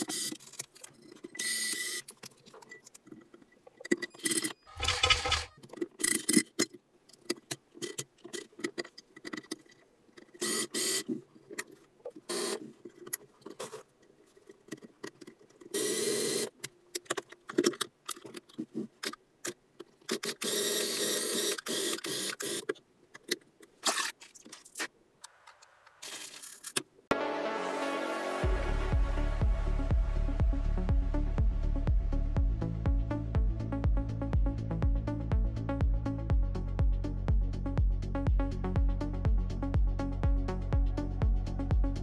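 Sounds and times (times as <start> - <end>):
plastic parts clicking: 0.0 - 13.8, 16.4 - 20.6
plastic scraping: 3.9 - 6.6.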